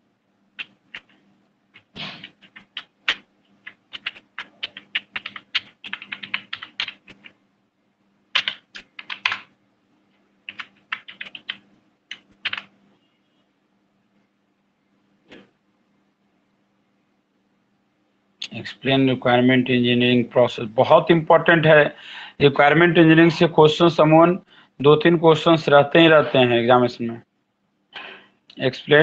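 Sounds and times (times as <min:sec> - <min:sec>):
faint low hum: 0:00.0 - 0:29.0
keyboard typing clicks: 0:00.6 - 0:01.2, 0:01.8 - 0:07.4, 0:08.3 - 0:09.5, 0:10.5 - 0:12.7.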